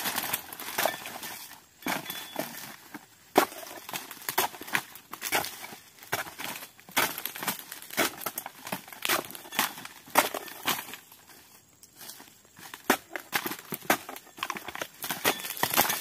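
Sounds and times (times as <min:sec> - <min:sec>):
blade chopping palm fronds: 0:00.0 - 0:11.0, 0:12.6 - 0:16.0
dry fronds crackling and tearing: 0:00.0 - 0:16.0.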